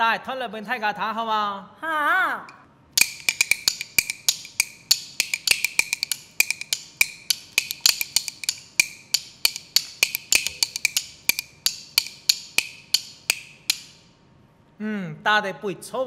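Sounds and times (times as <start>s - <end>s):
wooden clapper clacks: 3.0s - 14.0s.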